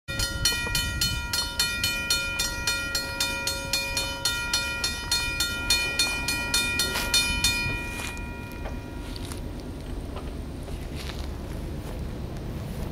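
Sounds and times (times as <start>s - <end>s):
railroad crossing bell ringing: 0.1s - 9.8s.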